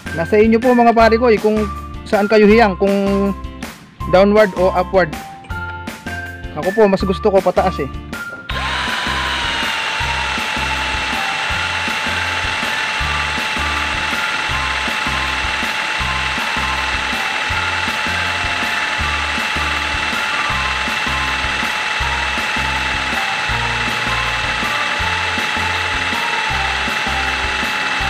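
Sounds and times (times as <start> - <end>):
cordless drill whining: 8.5 - 28.0.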